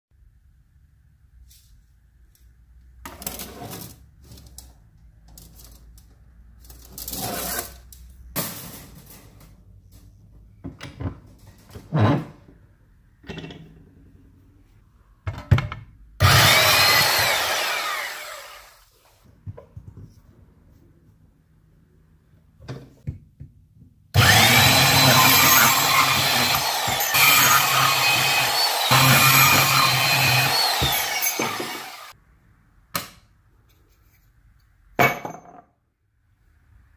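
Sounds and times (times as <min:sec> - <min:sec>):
tools and metal clattering: 0:06.6 - 0:11.8
saw blade cutting copper pipe: 0:16.2 - 0:18.7, 0:24.2 - 0:32.1
power saw whining: 0:16.2 - 0:18.8, 0:24.2 - 0:32.2.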